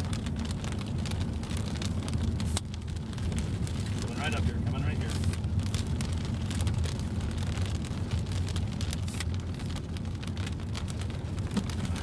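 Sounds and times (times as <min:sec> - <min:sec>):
car road rumble: 0:00.0 - 0:12.0
raindrops ticking on car: 0:00.0 - 0:12.0.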